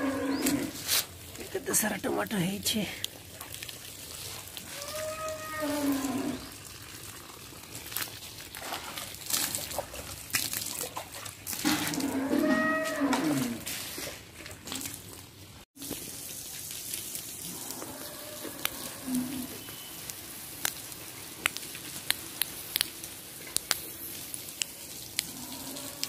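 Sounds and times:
water splashing onto plants: 0:00.4 - 0:26.0.

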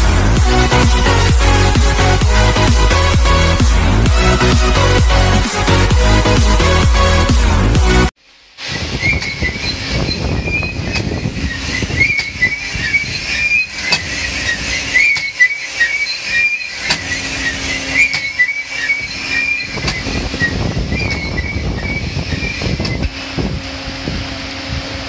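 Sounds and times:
machine running noise: 0:00.0 - 0:25.0
honing stones squealing: 0:08.6 - 0:23.2.

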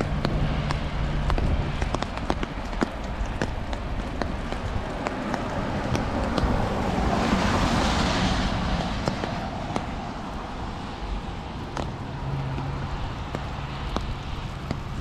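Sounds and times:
footsteps on wet pavement: 0:00.0 - 0:15.0
car tyres hissing on wet road: 0:04.8 - 0:15.0.

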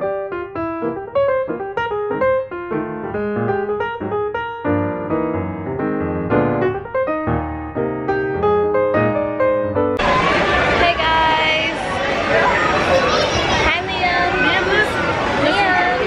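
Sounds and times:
piano music: 0:00.0 - 0:11.5.

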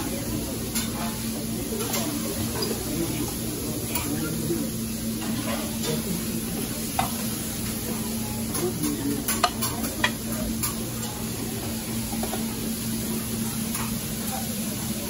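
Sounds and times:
metal tongs clicking on pans: 0:08.5 - 0:11.2.

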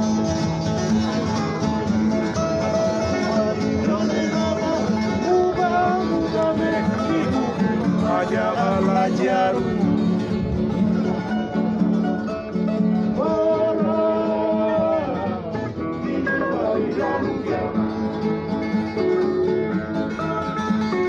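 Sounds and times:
string band playing: 0:00.0 - 0:21.0
strummed acoustic guitars: 0:00.0 - 0:21.0
voices singing: 0:02.6 - 0:09.8, 0:13.1 - 0:18.4.

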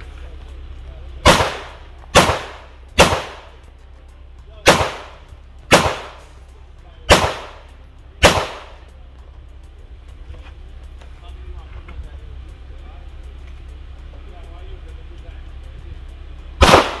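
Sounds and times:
pistol shots: 0:01.2 - 0:03.5, 0:04.6 - 0:06.2, 0:07.1 - 0:07.6, 0:08.2 - 0:08.8, 0:16.6 - 0:17.0.

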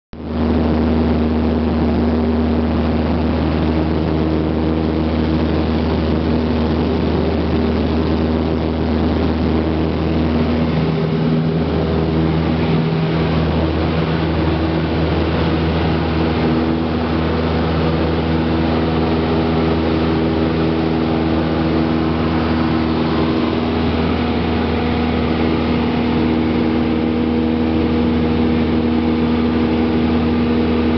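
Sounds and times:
propeller plane engine drone: 0:00.2 - 0:30.9.

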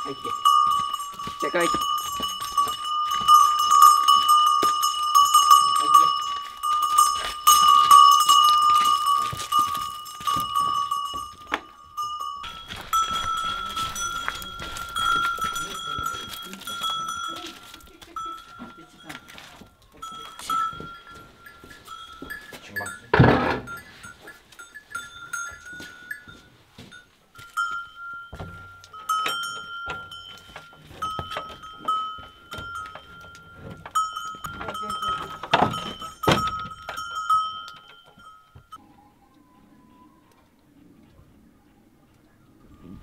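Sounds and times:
cowbell clanking: 0:00.0 - 0:38.8
cow bell clinking: 0:00.0 - 0:39.0
farm animal call: 0:38.8 - 0:43.0.

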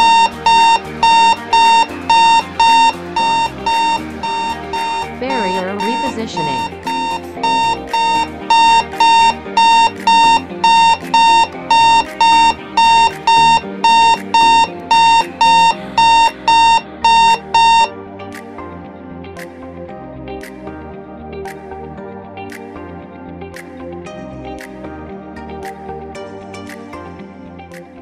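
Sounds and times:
turnstile alarm beeping: 0:00.0 - 0:17.9.

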